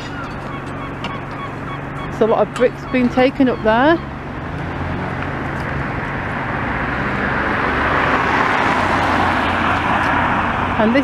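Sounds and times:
small car driving past: 3.8 - 11.0.

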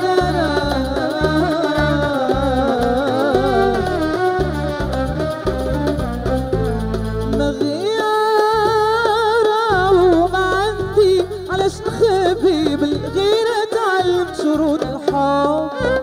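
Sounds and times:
keyboard violin and hand drums: 0.0 - 16.0.

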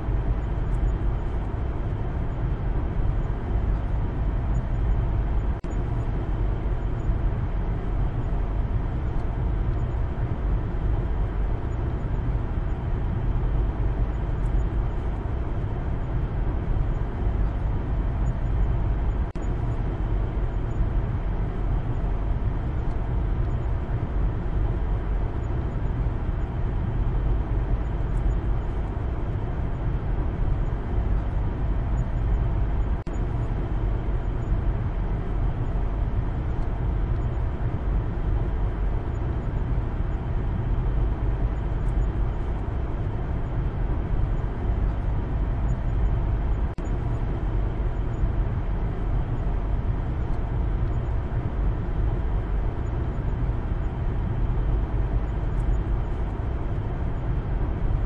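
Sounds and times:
road and engine rumble in car cabin: 0.0 - 58.0.

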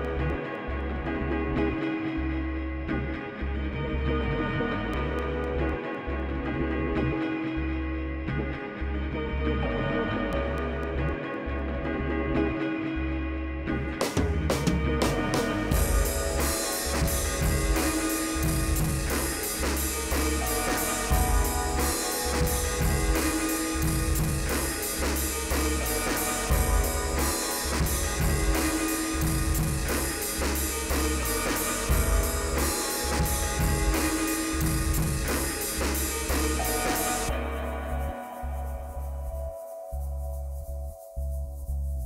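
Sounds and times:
instrumental rock music: 13.7 - 39.4
drum kit beat: 14.0 - 38.2.

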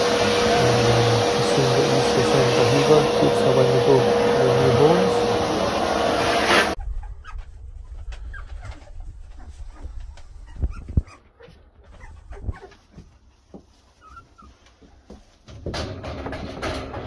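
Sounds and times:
loud rushing noise: 0.0 - 6.8
puppies squeaking and whimpering: 6.5 - 14.8.

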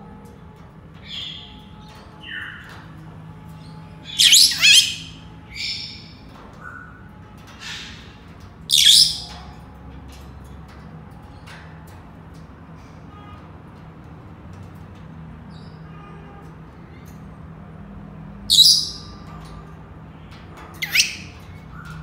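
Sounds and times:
parrots whistling and squawking: 4.0 - 6.2, 6.8 - 9.4, 18.5 - 19.2, 20.8 - 22.0.

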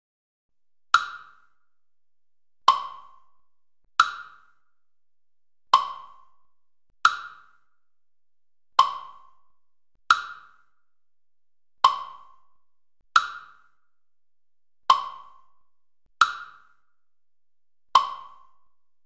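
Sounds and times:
wooden tick-tock clacks: 2.7 - 3.4, 4.0 - 4.6, 5.7 - 6.4, 7.0 - 7.6, 8.8 - 9.5, 10.1 - 10.7, 11.8 - 12.5, 13.2 - 13.8, 14.9 - 15.6, 16.2 - 16.8, 18.0 - 18.6.

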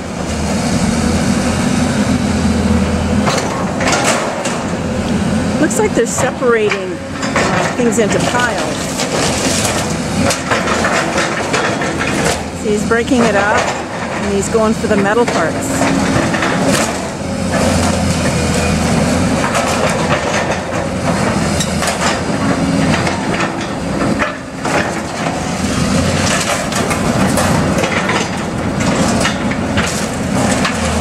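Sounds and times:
excavator diesel engine running: 0.0 - 31.0
knocks and clatters of falling material: 15.8 - 31.0.

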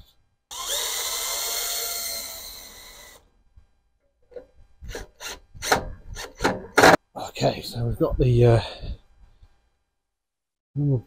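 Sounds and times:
cordless drill whining through metal: 0.5 - 3.3.

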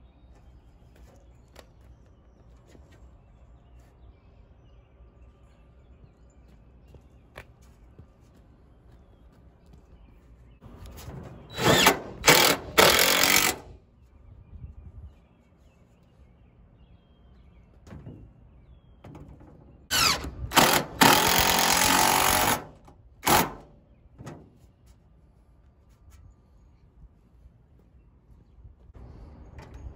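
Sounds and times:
cordless drill driving screws: 11.5 - 13.8, 19.9 - 23.6.

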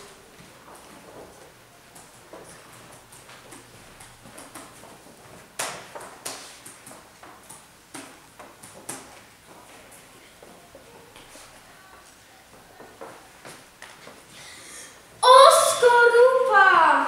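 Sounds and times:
footsteps on wooden floor: 8.4 - 14.2.

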